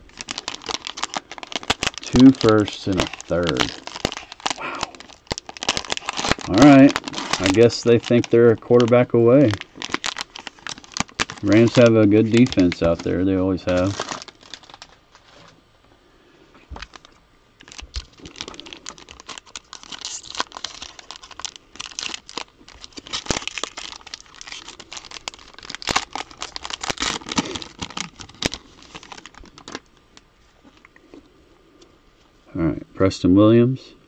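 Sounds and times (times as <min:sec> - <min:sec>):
wrapper crinkling and tearing: 0:00.0 - 0:15.5, 0:16.7 - 0:30.9
cards rustling: 0:00.1 - 0:15.5.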